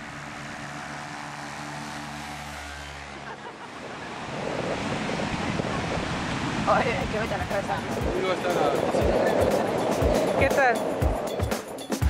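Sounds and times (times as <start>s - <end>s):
paramotor engine drone: 0.0s - 11.9s
wind: 0.0s - 12.0s
surf: 3.2s - 12.0s.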